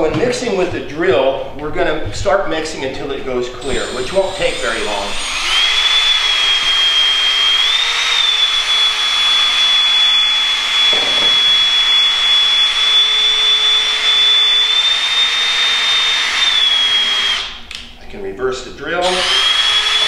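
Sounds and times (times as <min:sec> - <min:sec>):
cordless drill motor whine: 0:03.6 - 0:17.8, 0:19.0 - 0:20.0.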